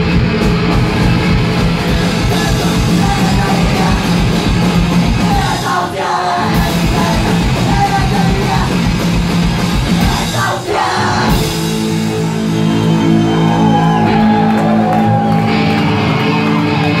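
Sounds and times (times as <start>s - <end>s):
live punk band playing: 0.0s - 17.0s
shouted vocals: 2.1s - 4.4s, 5.1s - 8.8s, 9.8s - 11.4s.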